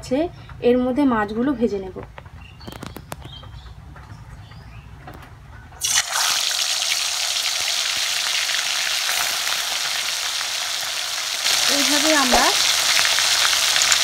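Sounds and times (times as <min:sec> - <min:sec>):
fish frying in hot oil: 0:05.8 - 0:14.0.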